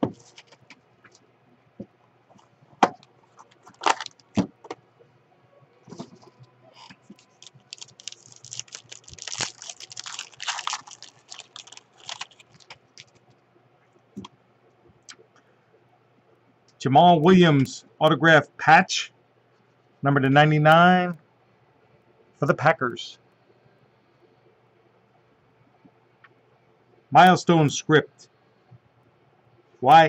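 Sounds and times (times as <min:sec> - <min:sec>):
foil wrapper tearing and crinkling: 0:03.7 - 0:04.3, 0:07.1 - 0:13.2.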